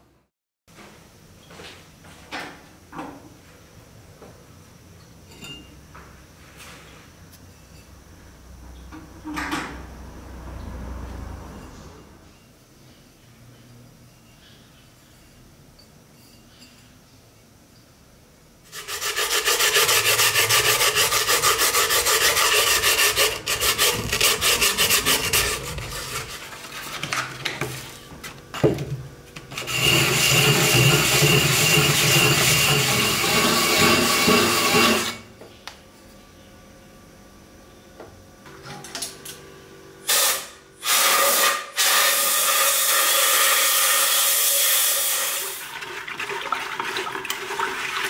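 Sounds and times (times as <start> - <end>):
ceramic scraping on sandpaper: 18.7 - 27.3, 29.5 - 35.2.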